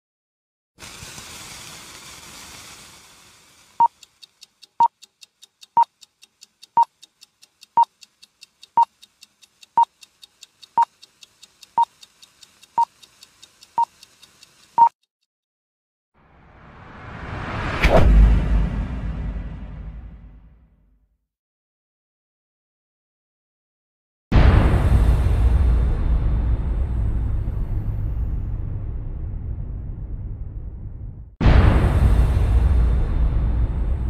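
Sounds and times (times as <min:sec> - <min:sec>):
hiss: 0:00.8 - 0:15.0
faint fast ticking: 0:00.8 - 0:15.3
short sharp beeps: 0:03.8 - 0:04.0, 0:04.8 - 0:05.0, 0:14.8 - 0:15.0.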